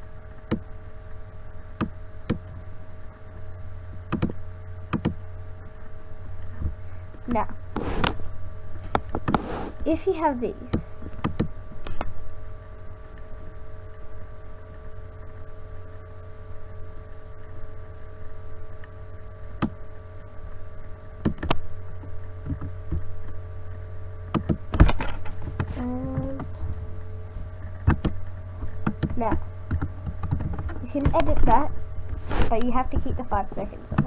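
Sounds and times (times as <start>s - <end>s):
electrical mains hum: 0.0s - 34.0s
keyboard and mouse clicks: 4.1s - 5.2s, 10.7s - 12.1s, 21.2s - 21.6s, 22.4s - 23.0s, 24.3s - 26.5s, 27.8s - 28.2s, 28.8s - 31.5s.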